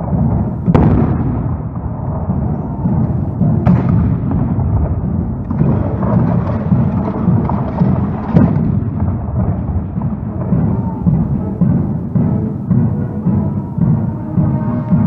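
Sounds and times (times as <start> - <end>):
cannon firing: 0.0 - 12.6
low rumble: 0.0 - 15.0.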